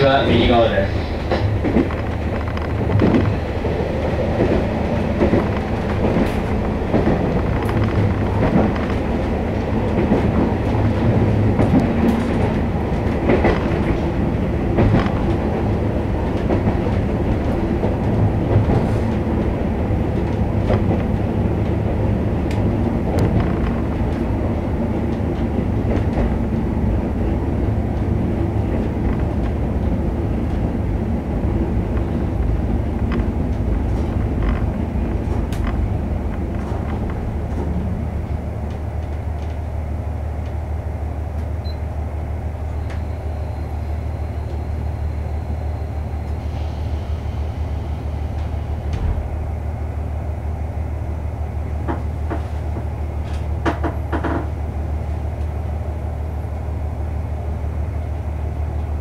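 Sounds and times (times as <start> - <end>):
train wheel and track noise: 0.0 - 59.0
clicks from rails: 33.0 - 37.7, 51.9 - 54.5.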